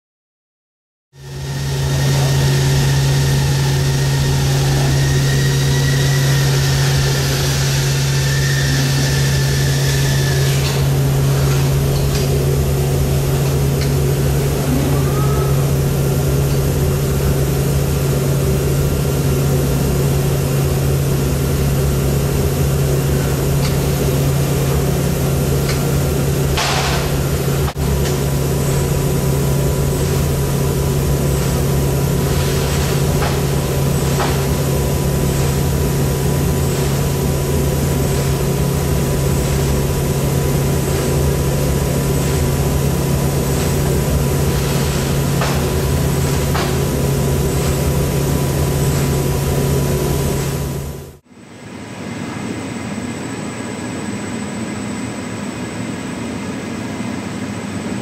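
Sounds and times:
robot and conveyor humming: 0:01.2 - 0:58.0
cartons and machinery knocking: 0:26.5 - 0:49.8.

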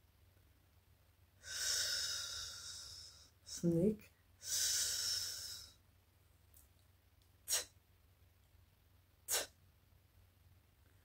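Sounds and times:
woman hissing an s sound: 0:04.4 - 0:05.8, 0:07.5 - 0:07.8, 0:09.3 - 0:09.6
breathy t sounds: 0:07.5 - 0:07.8.

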